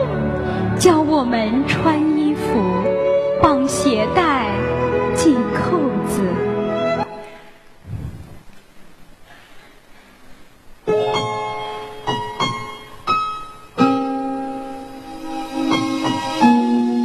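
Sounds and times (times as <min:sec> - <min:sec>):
slow piano music: 0:00.0 - 0:07.3, 0:10.8 - 0:17.0.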